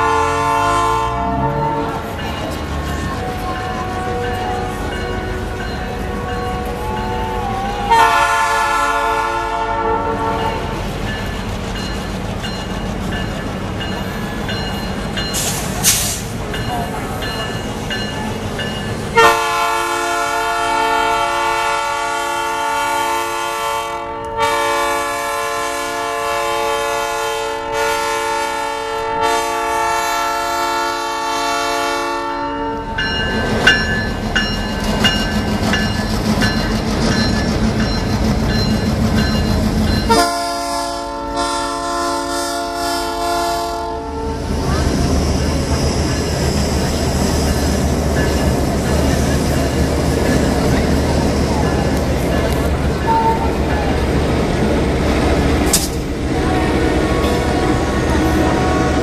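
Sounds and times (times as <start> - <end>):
locomotive air horn: 0.0 - 2.2, 3.1 - 10.8, 19.1 - 33.0, 40.0 - 44.6, 53.0 - 53.6, 56.2 - 59.0
diesel locomotives rumbling past: 0.0 - 59.0.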